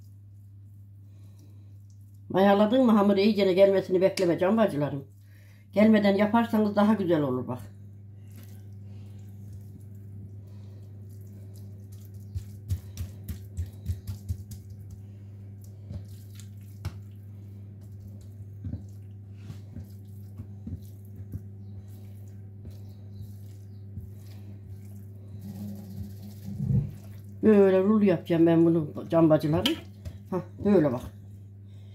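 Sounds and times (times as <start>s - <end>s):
steady low hum: 0.0s - 31.9s
dough rustling and tapping: 8.2s - 27.8s, 28.4s - 31.4s.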